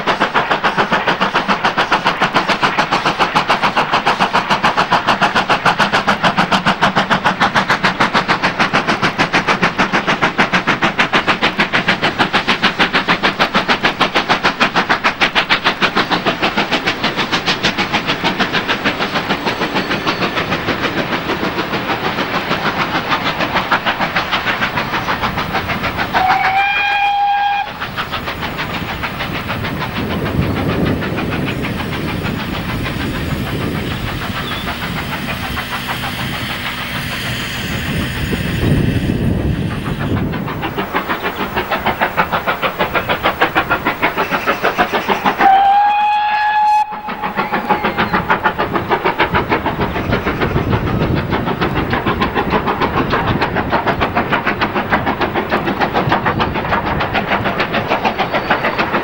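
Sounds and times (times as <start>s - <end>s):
steam locomotive exhaust beats: 0.0s - 59.0s
steam whistle: 26.1s - 27.8s, 45.4s - 47.9s.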